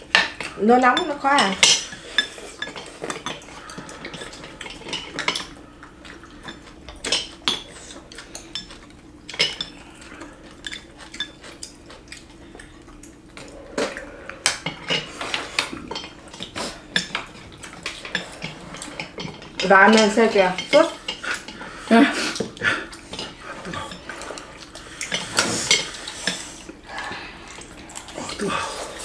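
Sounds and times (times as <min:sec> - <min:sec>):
faint steady hum: 0:00.0 - 0:29.0
utensils clinking against bowls: 0:00.0 - 0:29.0.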